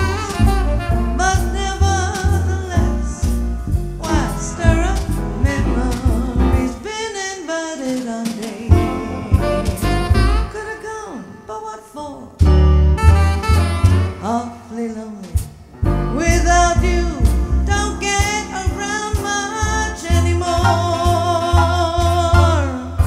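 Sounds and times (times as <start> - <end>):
saxophone: 0.0 - 3.3, 8.7 - 11.3, 12.7 - 14.6
bass: 0.0 - 7.2, 7.8 - 11.2, 12.0 - 23.0
drums: 0.0 - 10.6, 12.4 - 14.4, 15.0 - 23.0
woman singing jazz: 0.0 - 12.8, 13.6 - 23.0
piano: 0.0 - 23.0.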